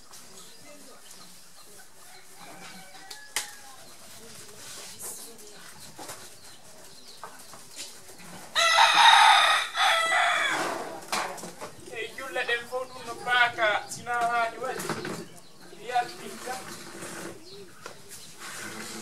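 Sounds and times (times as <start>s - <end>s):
faint yard sounds: 0.0s - 19.0s
rooster crowing: 8.6s - 10.7s.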